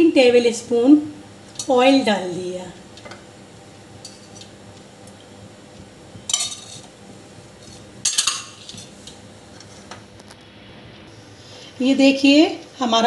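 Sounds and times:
spoon clinking in metal bowl: 6.3s - 6.8s.

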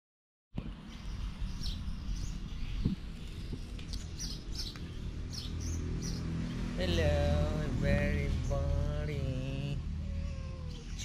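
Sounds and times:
birds chirping: 0.6s - 11.0s
low outdoor rumble: 0.6s - 11.0s.

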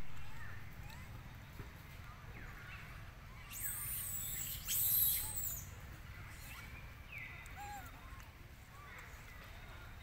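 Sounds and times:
monkey squealing: 3.6s - 5.6s.

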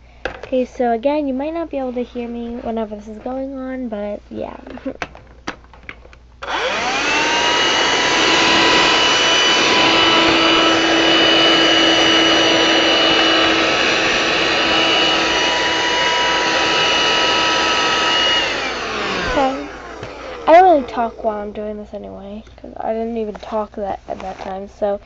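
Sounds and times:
handheld vacuum cleaner running: 6.4s - 21.6s.

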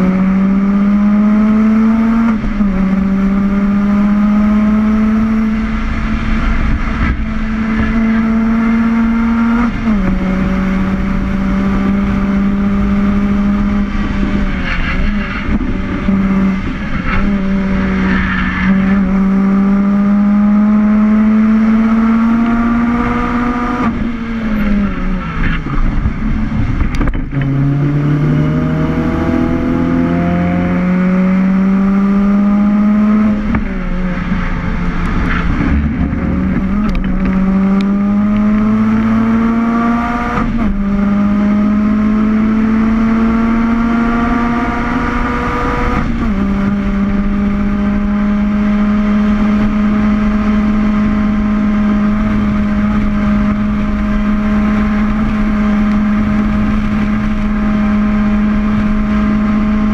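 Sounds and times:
car engine revving hard: 0.0s - 59.9s
tyre and wind noise: 5.3s - 20.4s, 32.2s - 41.5s.

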